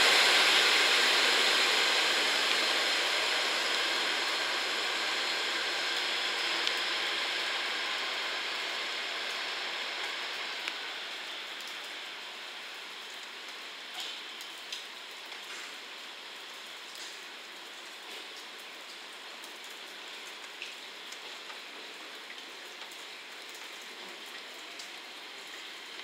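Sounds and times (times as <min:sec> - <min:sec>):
train engine and wheels: 0:00.0 - 0:13.0
rain hiss: 0:00.0 - 0:26.0.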